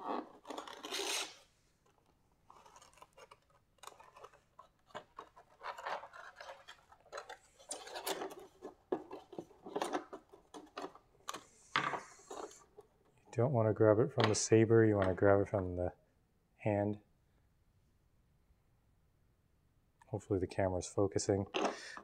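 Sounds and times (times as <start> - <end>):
packing material rubbing and rustling: 0.0 - 10.0.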